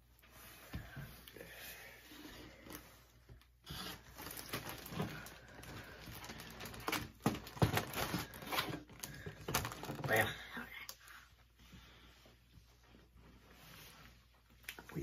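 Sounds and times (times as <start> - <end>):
cardboard boxes rustling and crinkling: 3.8 - 10.4.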